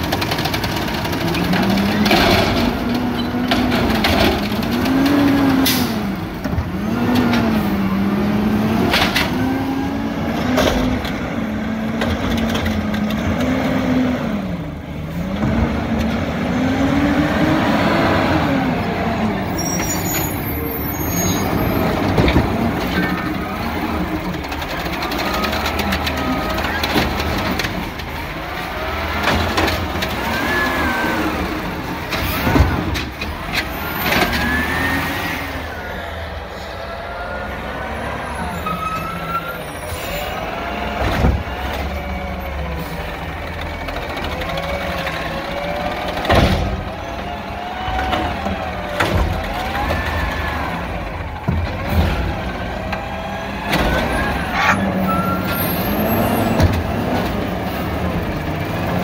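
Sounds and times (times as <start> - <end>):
truck engine rumbling: 0.0 - 59.0
sharp bangs of carts: 44.0 - 59.0.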